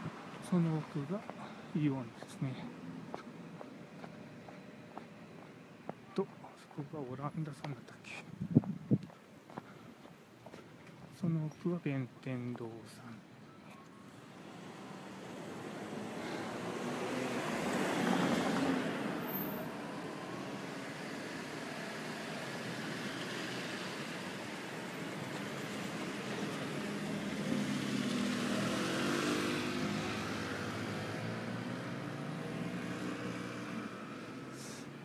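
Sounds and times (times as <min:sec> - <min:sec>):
car passing: 0:14.3 - 0:35.0
vehicle engine passing by: 0:14.6 - 0:19.3, 0:25.4 - 0:34.9.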